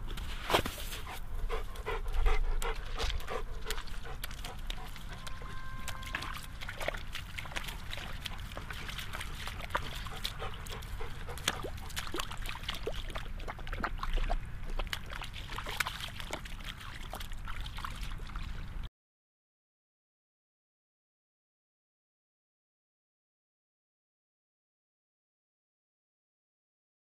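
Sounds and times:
footsteps squelching in mud: 0.0 - 18.6.

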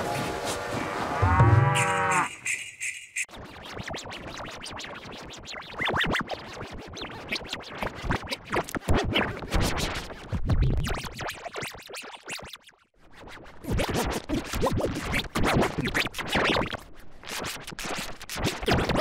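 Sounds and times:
scratch-like pitch glides: 1.0 - 11.2
stuttering edited cartoon music: 2.2 - 19.0.

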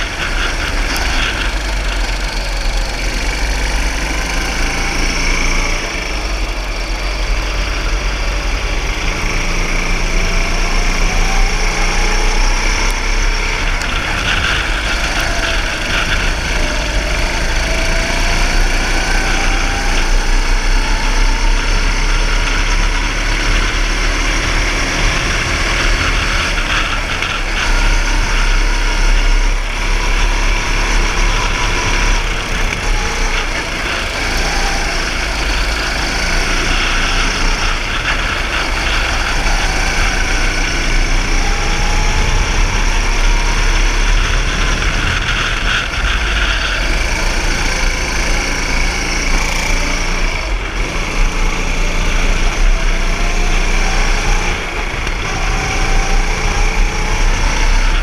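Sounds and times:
go-kart engine: 0.0 - 58.0.

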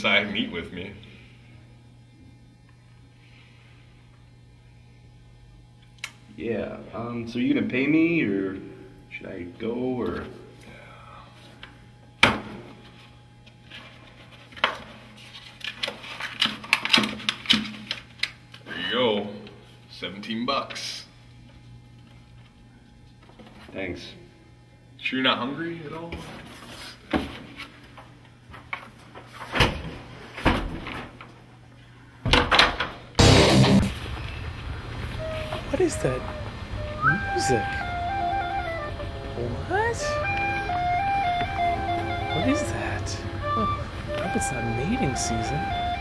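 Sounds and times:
low steady hum: 33.2 - 46.0.

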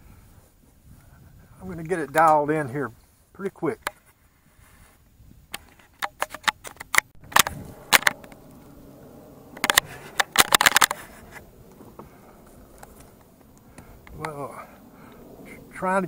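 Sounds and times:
camera handling clicks and scrapes: 3.9 - 8.4, 9.5 - 11.5.

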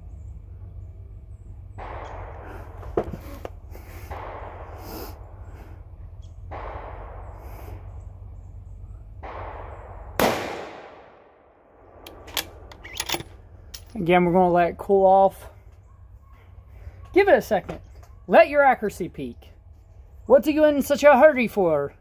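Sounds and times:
steady low rumble: 0.0 - 22.0
rifle shot: 1.8 - 5.8, 6.4 - 8.0, 9.2 - 13.2.

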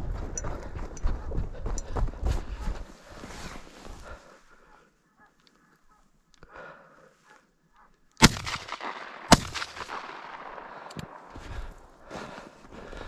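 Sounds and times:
shotgun shots with echo: 8.2 - 11.4.

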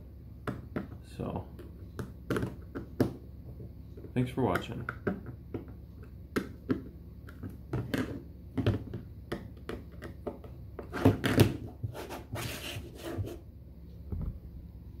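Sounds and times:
plastic board clicking and knocking: 1.6 - 3.2, 4.0 - 11.7
short scrape: 11.9 - 13.4.

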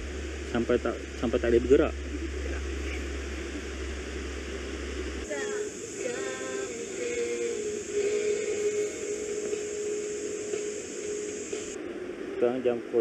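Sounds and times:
low hum with hiss: 0.0 - 13.0
steady high hiss: 0.0 - 13.0
person singing: 5.2 - 10.1.

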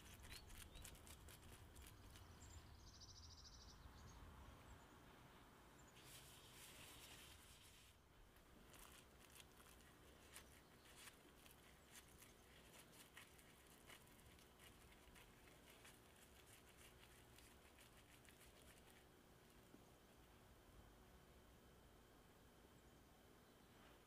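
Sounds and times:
squishing of raw meat mixture: 8.2 - 19.1.

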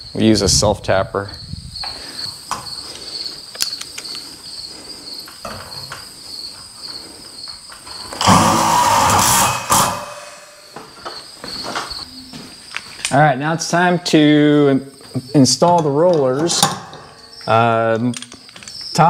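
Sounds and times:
crickets chirping: 0.0 - 19.0.

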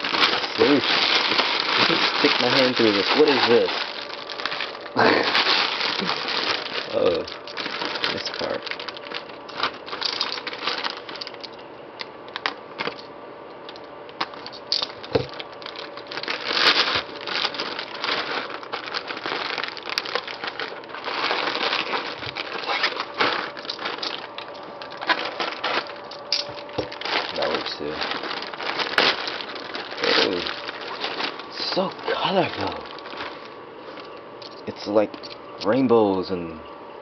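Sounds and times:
plastic bag crinkling and rustling: 0.0 - 13.1, 13.7 - 35.4.

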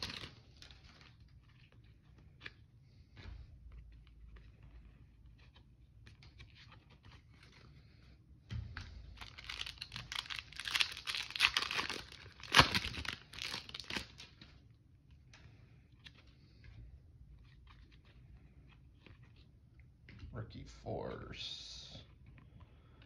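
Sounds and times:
foil wrapper tearing and crinkling: 0.0 - 1.2, 9.2 - 14.4.

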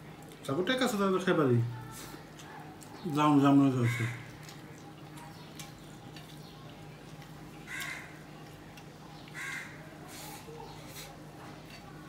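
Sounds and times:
crow cawing: 3.8 - 4.4, 7.7 - 8.2, 9.4 - 9.8.

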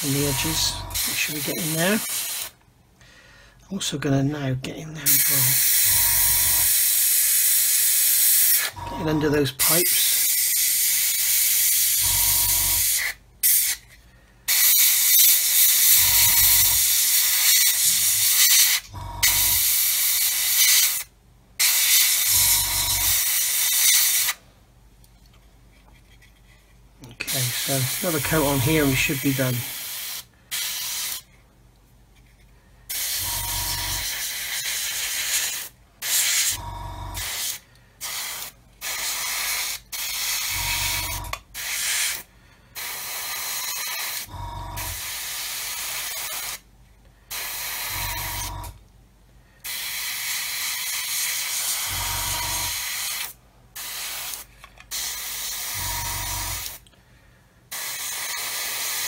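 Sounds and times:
airbrush spraying hiss: 0.0 - 2.6, 9.6 - 12.1, 14.5 - 24.4, 27.3 - 31.3, 32.9 - 33.3, 34.0 - 36.6, 37.2 - 40.9, 41.6 - 44.3, 47.3 - 48.3, 49.6 - 52.0, 52.6 - 56.8, 57.7 - 59.0
short low hum: 8.8 - 9.4, 44.3 - 45.0, 51.9 - 52.7.

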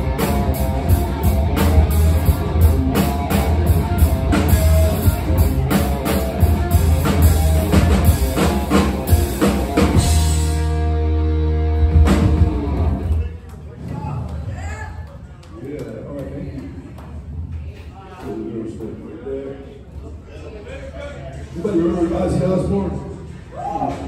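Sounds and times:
live rock band playing: 0.0 - 13.2.

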